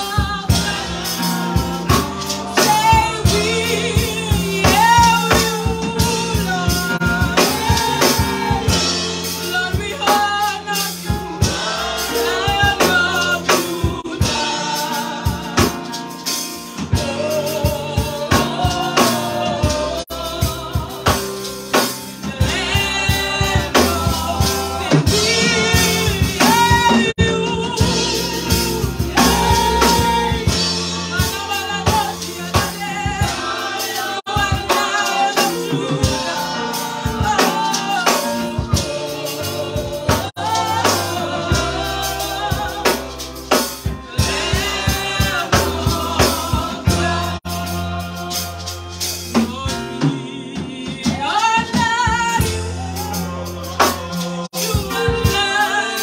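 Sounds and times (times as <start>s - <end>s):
woman singing into microphone: 0.0s - 1.2s, 2.5s - 11.2s, 22.3s - 43.1s, 49.4s - 56.0s
backing music: 0.0s - 56.0s
drums: 0.0s - 56.0s.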